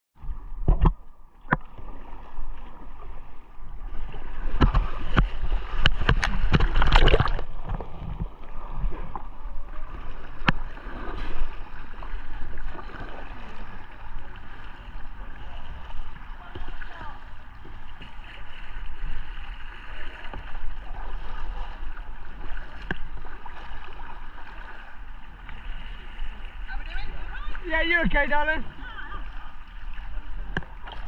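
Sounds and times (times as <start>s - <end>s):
kayak paddle splashes and knocks: 0.2s - 3.0s, 3.9s - 31.0s
river water rushing: 26.3s - 31.0s.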